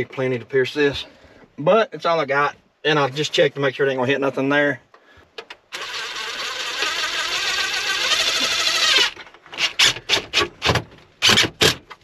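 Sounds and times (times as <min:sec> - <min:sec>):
cordless drill driving a screw: 0:05.7 - 0:10.3.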